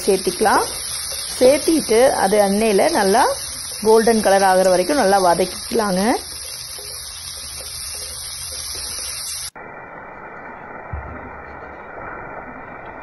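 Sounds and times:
onions sizzling in oil: 0:00.0 - 0:09.7.

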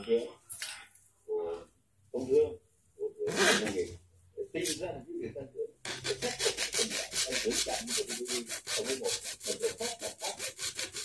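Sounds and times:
hand saw cutting filter: 0:05.9 - 0:11.0.

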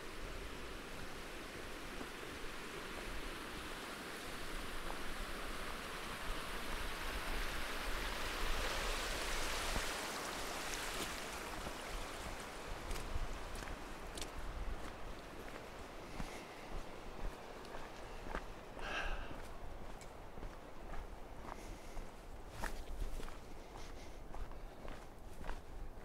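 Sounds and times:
stream trickling over rocks: 0:00.0 - 0:16.1.

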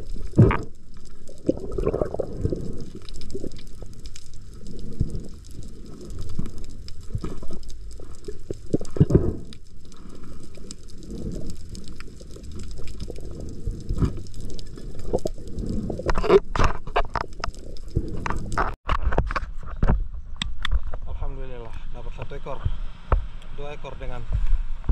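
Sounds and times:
muffled underwater rumble: 0:00.0 - 0:20.9.

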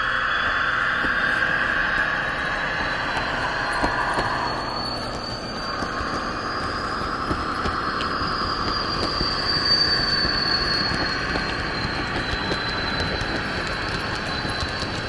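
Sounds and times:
high whine: 0:00.0 - 0:15.0
model train wheel and track noise: 0:00.0 - 0:15.0.

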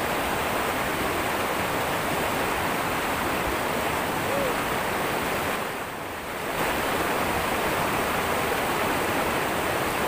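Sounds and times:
water rushing over rocks: 0:00.0 - 0:10.0.

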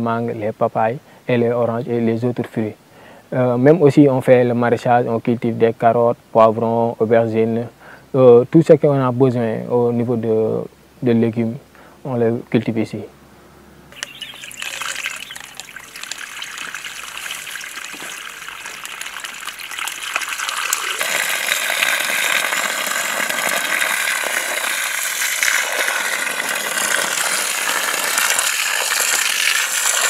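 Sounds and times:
water gushing from a hose: 0:14.0 - 0:30.0.

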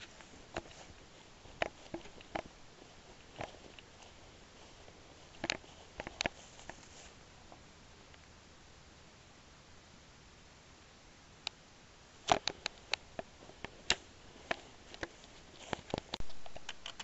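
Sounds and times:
footsteps through grass: 0:00.0 - 0:07.4, 0:12.3 - 0:16.5.

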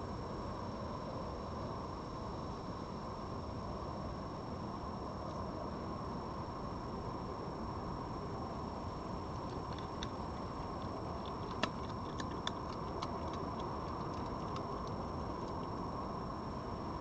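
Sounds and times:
background hiss: 0:00.0 - 0:17.0
fox crunching dry food: 0:09.2 - 0:15.9.

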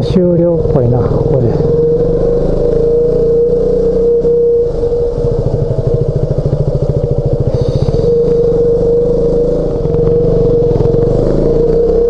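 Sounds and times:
motorcycle engine running at low revs: 0:00.0 - 0:12.0.

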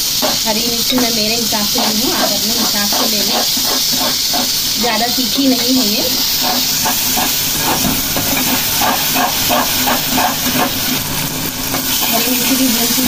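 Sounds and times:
paste frying in hot oil: 0:00.0 - 0:13.0
metal spoon scraping pot: 0:01.8 - 0:04.6, 0:05.6 - 0:10.7.

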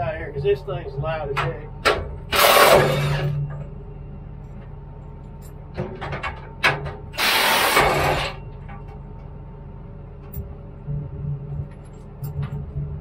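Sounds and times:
low steady hum: 0:00.0 - 0:13.0
air blower blasts: 0:02.3 - 0:03.3, 0:07.1 - 0:08.4.

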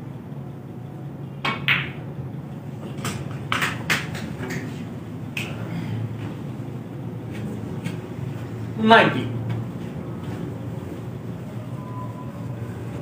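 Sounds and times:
steady low hum: 0:00.0 - 0:13.0
snooker balls clicking: 0:01.4 - 0:02.1, 0:02.9 - 0:05.6.

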